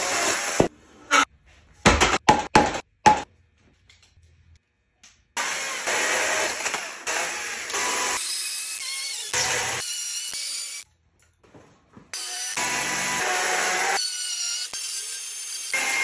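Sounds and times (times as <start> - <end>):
chainsaw cutting wood: 5.4 - 10.8, 12.2 - 14.0.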